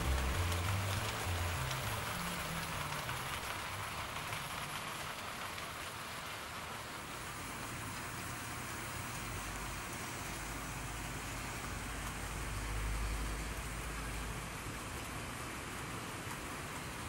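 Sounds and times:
background music: 0.0 - 3.4.

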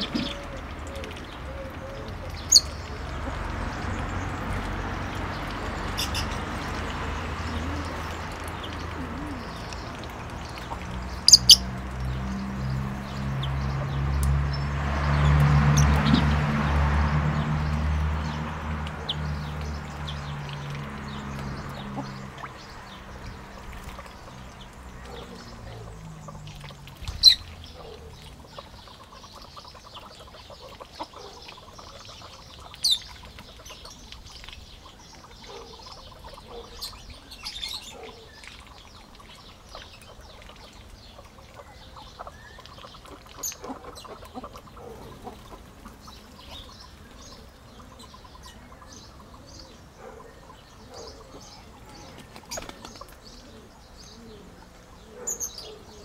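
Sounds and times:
birds chirping: 0.0 - 56.0
loud sharp bird calls: 4.3 - 9.9.

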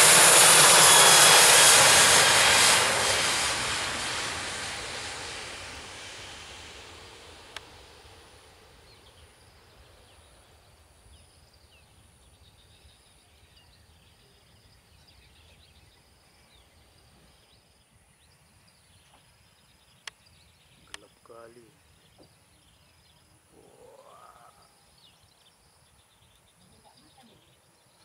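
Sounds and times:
jet engine noise: 0.0 - 23.3
birds chirping: 8.8 - 28.0.

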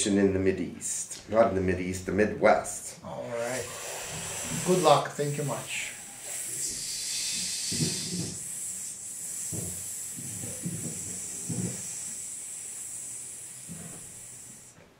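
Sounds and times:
steady hiss: 0.6 - 14.9
man breathing heavily: 3.6 - 5.0, 5.7 - 14.8
soft low throat sounds: 5.9 - 14.9.

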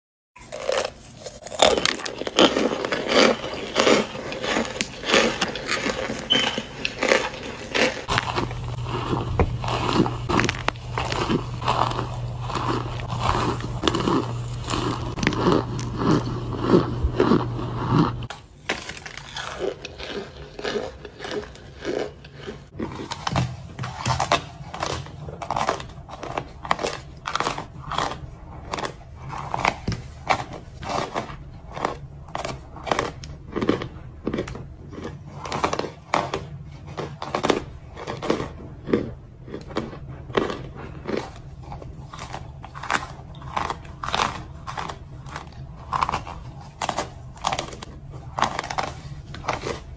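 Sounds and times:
cornstarch chunks crunching: 0.4 - 49.9
low steady hum: 0.4 - 49.9.

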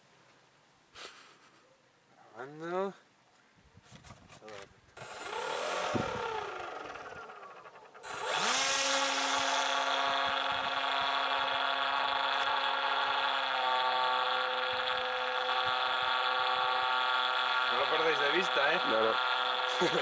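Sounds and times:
electric motor and propeller whine: 5.0 - 20.0.

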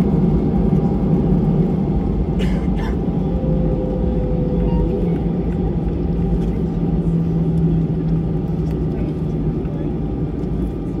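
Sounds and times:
jet engines idling rumble: 0.0 - 11.0
steady low hum: 0.0 - 11.0
faint high tone: 4.5 - 5.2.

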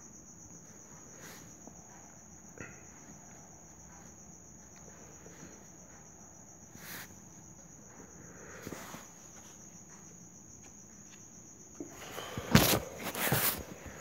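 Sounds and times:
cricket trilling: 0.0 - 14.0
faint soft rustles: 0.5 - 14.0.

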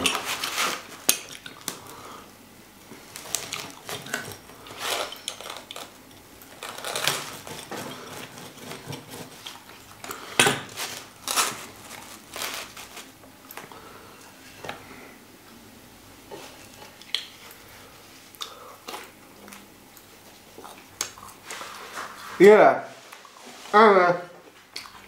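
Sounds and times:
metal utensil scraping cardboard: 6.6 - 9.6.

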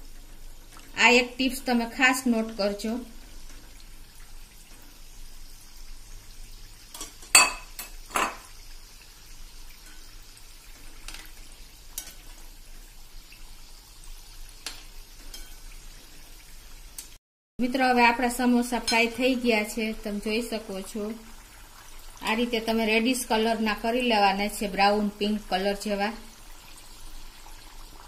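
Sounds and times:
oil sizzling while deep-frying: 0.0 - 28.0
metal spoon clinking on pan: 7.0 - 8.4, 15.3 - 15.6.

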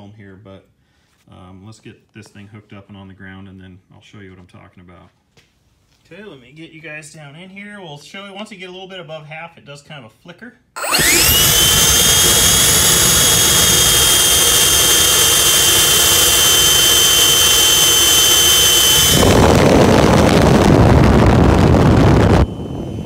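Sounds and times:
electric ducted fans whining: 10.8 - 23.0
rush of air from fan exhaust: 18.4 - 23.0.

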